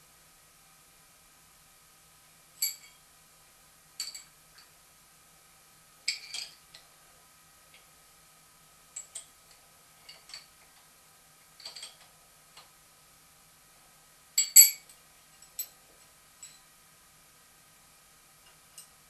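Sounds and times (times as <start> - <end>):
spanner clinking on metal nut: 2.6 - 3.0, 4.0 - 4.3, 6.1 - 6.6, 9.0 - 9.4, 11.6 - 12.1, 14.4 - 15.8.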